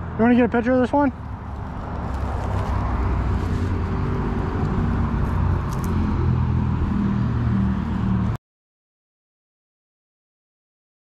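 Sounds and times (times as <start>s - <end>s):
vehicle engine humming: 0.0s - 8.4s.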